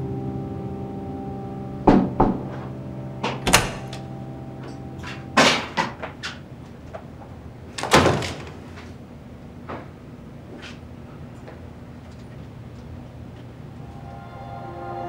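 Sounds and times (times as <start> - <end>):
held music chord: 0.0 - 7.7, 13.6 - 15.0
door knocks and clunks: 3.2 - 4.0.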